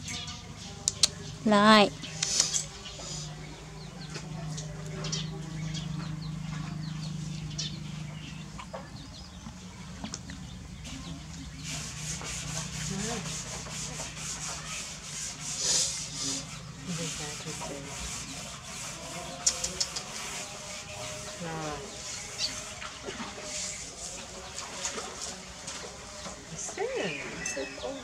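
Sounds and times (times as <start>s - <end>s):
hands rubbing fur and cloth: 2.2s - 2.6s.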